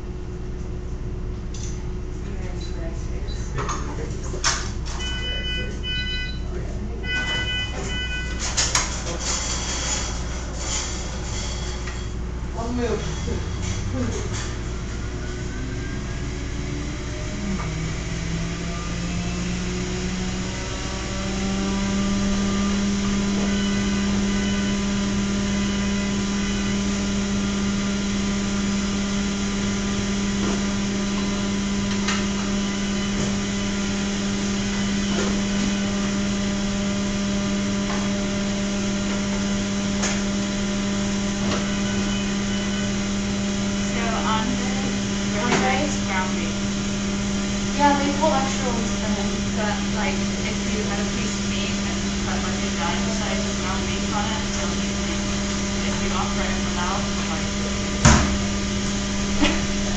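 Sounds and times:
electric motor humming: 13.2 - 59.9.

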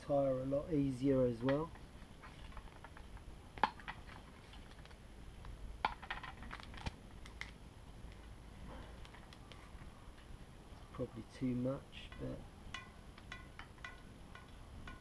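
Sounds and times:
inner tube clicks and taps: 12.1 - 15.0.

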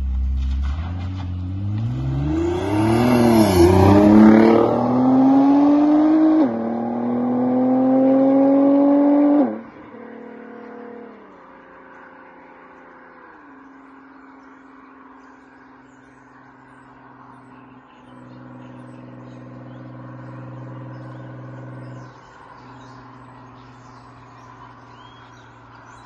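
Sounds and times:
car engine droning: 0.0 - 26.0
birds chirping faintly: 1.8 - 26.0.

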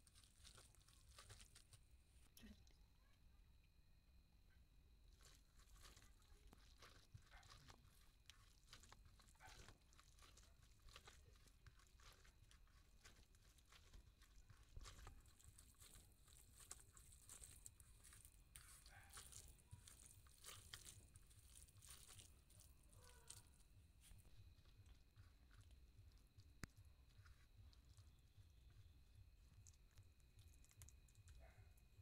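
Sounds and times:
hand mashing greens squishing: 0.0 - 1.9, 5.1 - 32.0.

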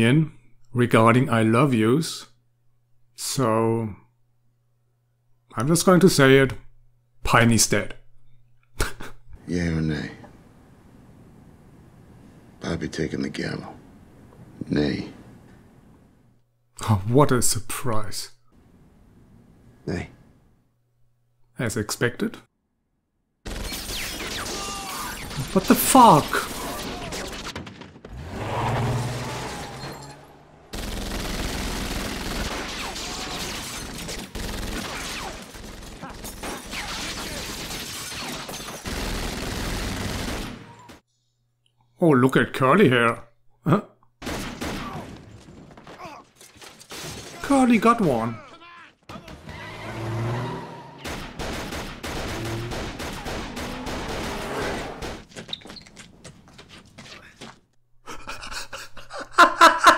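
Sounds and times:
automatic gunfire: 30.7 - 41.0, 51.0 - 55.3.

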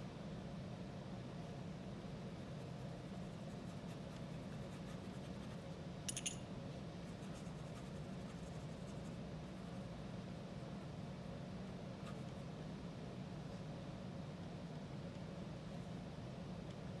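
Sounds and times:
low room hum: 0.0 - 17.0
paintbrush scratching on fabric: 2.4 - 5.9, 7.0 - 10.9.

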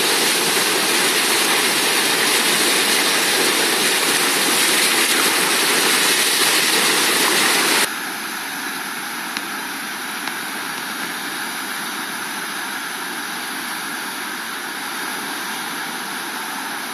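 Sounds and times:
river rushing: 0.0 - 16.9.

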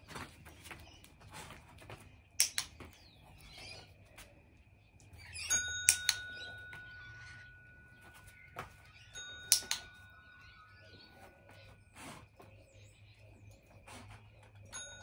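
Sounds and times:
push bell ringing: 5.3 - 11.0, 14.7 - 15.0
sharp taps on bell: 5.4 - 10.5.

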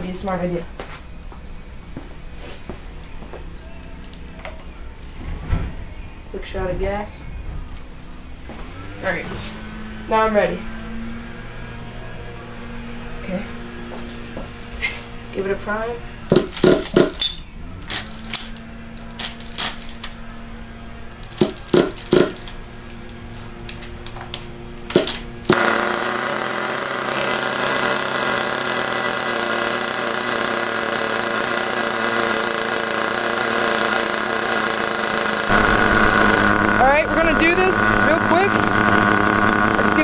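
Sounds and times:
sharp clicks and knocks: 16.3 - 20.1, 21.2 - 22.6, 23.7 - 26.5
small nitro engine idling: 21.2 - 22.6, 24.9 - 40.0.

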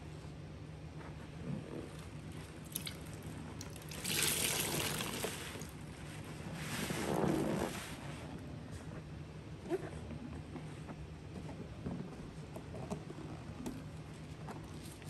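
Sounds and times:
liquid splashing and trickling: 2.6 - 5.8.

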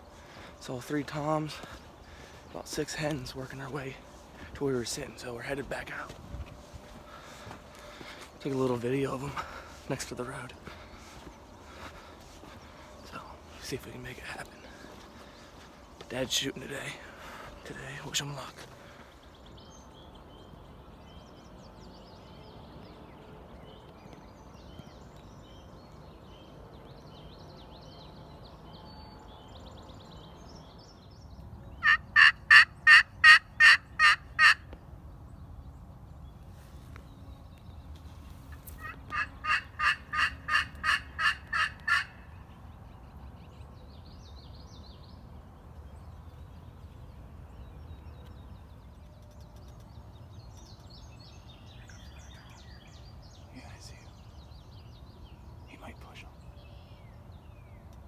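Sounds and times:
faint birdsong: 0.0 - 58.0
turkey calls: 31.8 - 34.7, 38.5 - 42.4.

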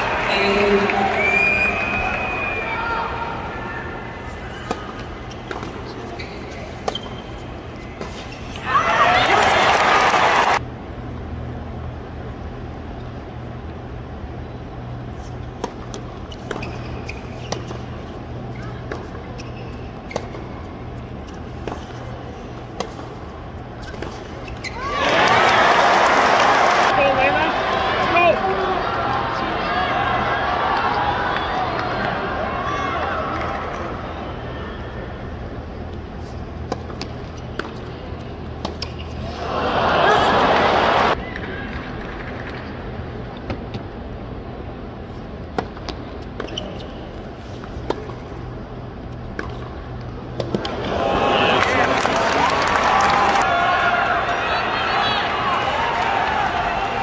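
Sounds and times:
stadium crowd hum: 0.0 - 57.0
crowd cry: 24.8 - 26.9, 39.3 - 41.2, 50.6 - 57.0
stadium crowd hush: 39.2 - 41.2.

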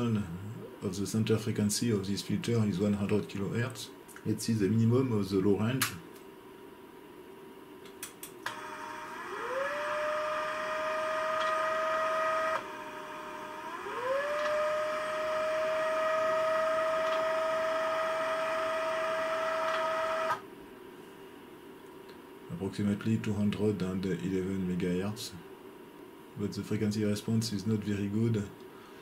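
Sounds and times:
stepper motor whining: 8.5 - 20.4.

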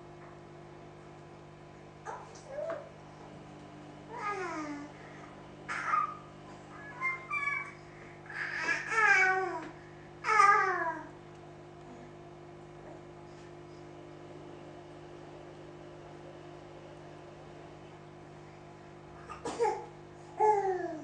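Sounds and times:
steady low hum: 0.0 - 21.0
small child babbling: 4.1 - 4.9, 5.7 - 11.1, 19.2 - 21.0.

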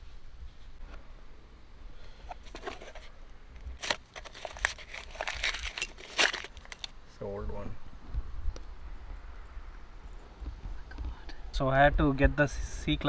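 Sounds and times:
tools clicking and scraping: 3.7 - 6.9.

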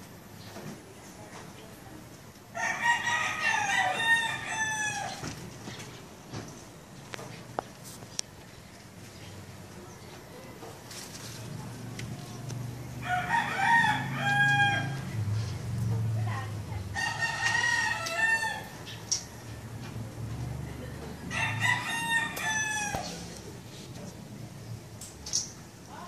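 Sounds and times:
rooster crowing: 2.5 - 5.3, 13.0 - 15.2, 16.9 - 19.6, 21.3 - 23.3.

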